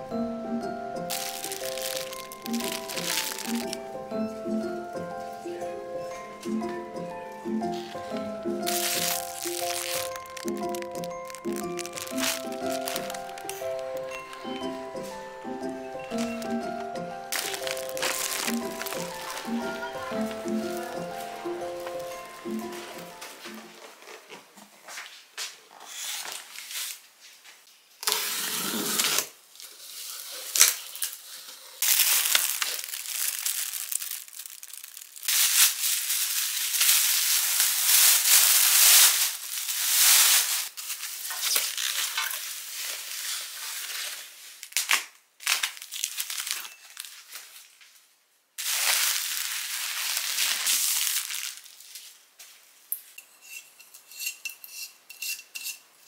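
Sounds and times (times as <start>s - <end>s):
packaging tearing: 1.1s - 3.8s, 8.6s - 14.6s, 17.3s - 23.2s, 28.0s - 47.5s, 48.6s - 52.1s
plastic wrap rustling and crinkling: 1.1s - 5.3s, 7.6s - 53.2s.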